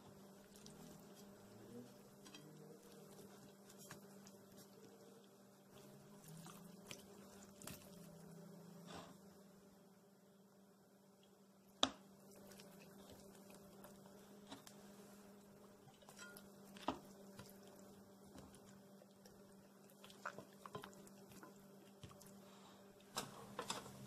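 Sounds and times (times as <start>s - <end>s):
low steady hum: 0.0s - 24.0s
hands squishing raw chicken: 0.1s - 8.2s.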